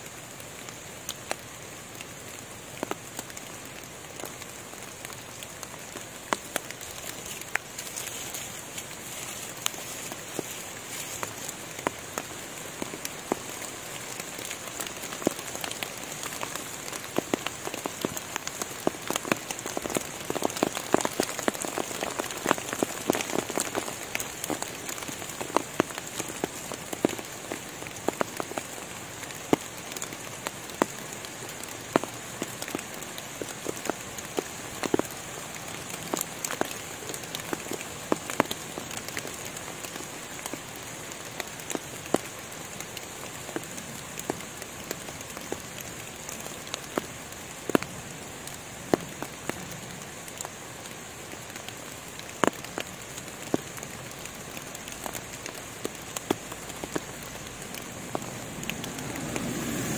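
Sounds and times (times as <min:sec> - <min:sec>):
rain pattering on leaves: 0:00.0 - 0:59.9
steady high hiss: 0:00.0 - 0:59.9.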